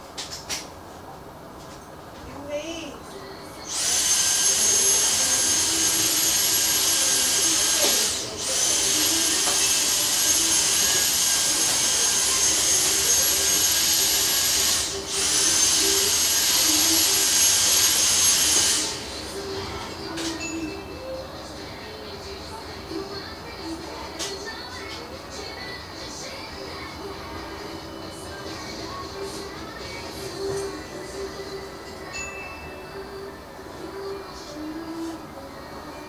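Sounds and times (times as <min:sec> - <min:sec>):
vacuum cleaner motor whine: 0:03.6 - 0:19.6.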